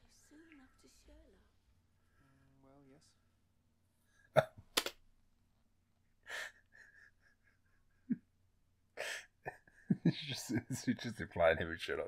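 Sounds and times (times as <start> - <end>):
man laughing breathily: 6.2 - 8.3, 9.0 - 10.7.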